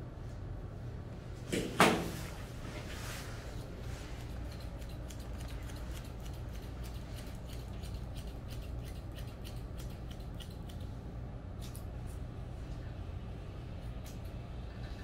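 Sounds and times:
scissors snipping fur: 4.2 - 11.0, 11.6 - 12.2, 13.8 - 14.4.

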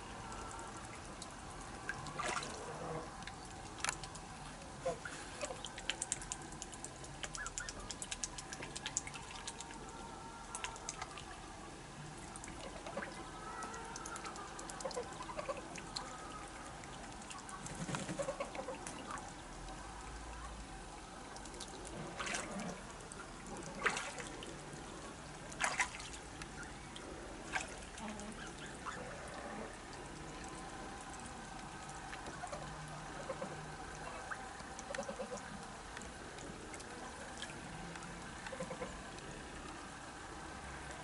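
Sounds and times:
fowl calling: 38.5 - 39.0.

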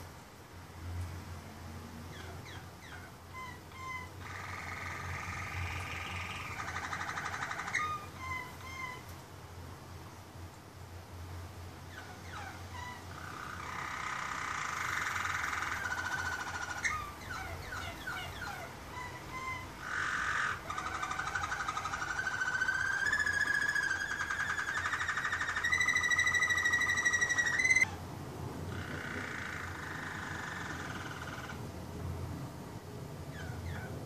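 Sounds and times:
canary singing rolling trills: 2.0 - 9.1, 11.8 - 28.0, 28.7 - 31.6, 33.3 - 34.0.

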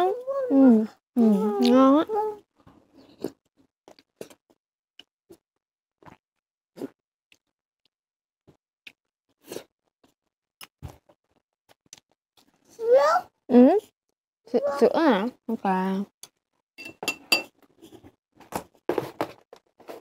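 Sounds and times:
person chewing food: 2.9 - 5.4, 6.0 - 6.2, 6.8 - 7.9, 8.5 - 12.7.

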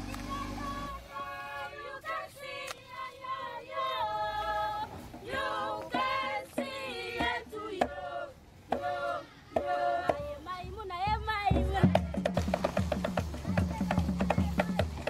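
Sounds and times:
choir singing: 0.0 - 10.5.

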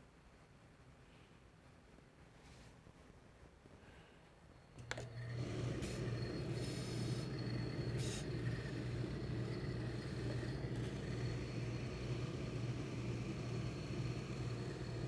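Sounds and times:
low machine hum: 4.5 - 15.0
steam iron hiss: 5.0 - 15.0.

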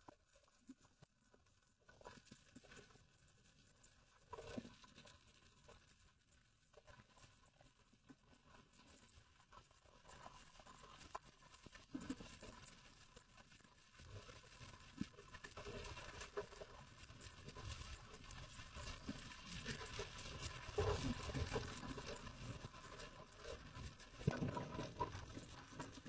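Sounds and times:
underwater crackle of clicks: 14.9 - 26.0.

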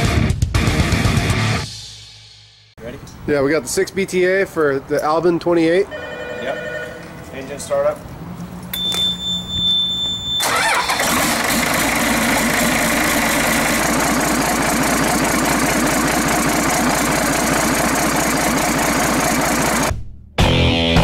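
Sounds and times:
diesel engine starting and running: 8.1 - 20.0.

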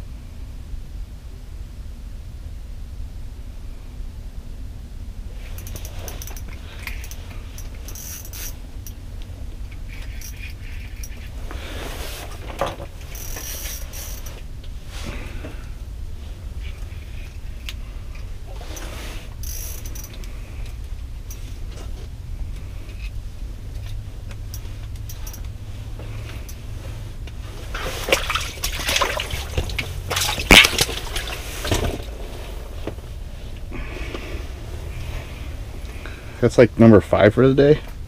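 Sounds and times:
steady low hum: 0.0 - 38.0
water splashing: 27.6 - 32.1.

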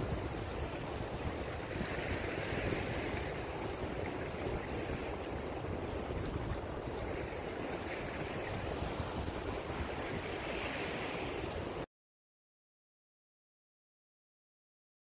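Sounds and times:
wind rumbling on microphone: 0.0 - 11.8
surf washing on beach: 0.0 - 11.9.

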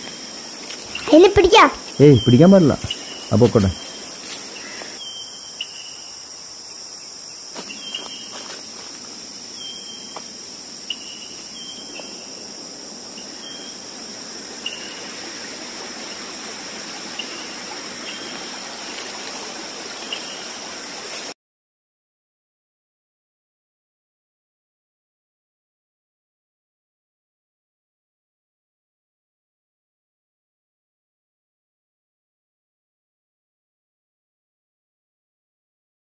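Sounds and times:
flowing stream water: 0.0 - 5.0, 7.6 - 21.4
faint chirps: 0.0 - 6.5
high-pitched insect drone: 0.0 - 21.3.

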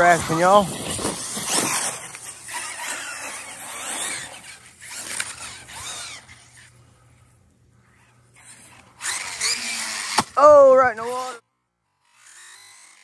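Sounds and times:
electric motor whining: 0.0 - 6.8, 7.9 - 11.4, 12.0 - 13.0.

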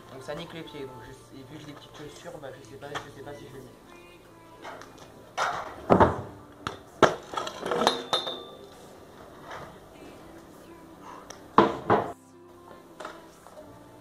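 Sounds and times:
scooter wheels hitting wooden ramp: 5.4 - 8.1
metal scooter clanking on asphalt: 7.0 - 8.6.

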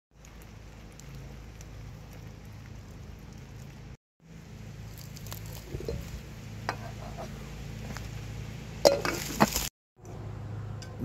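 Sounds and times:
water trickling onto leaves: 0.1 - 6.7, 7.5 - 9.7
steady low hum: 0.2 - 9.4.

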